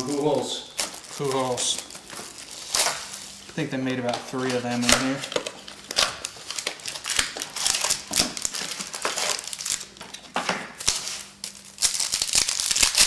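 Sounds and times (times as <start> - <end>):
trading cards rustling and crinkling: 0.0 - 13.0.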